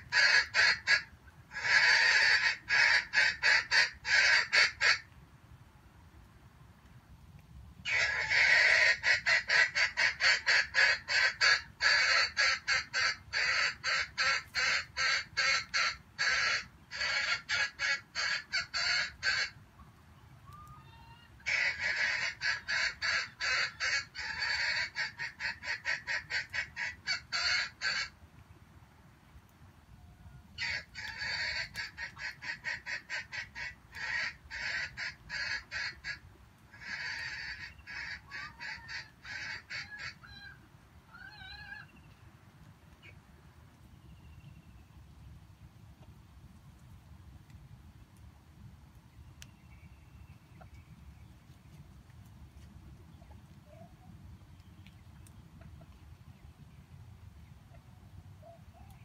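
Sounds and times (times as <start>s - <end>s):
junglefowl clucking: 0.0s - 5.1s, 7.9s - 19.6s, 20.5s - 28.2s, 30.6s - 42.1s.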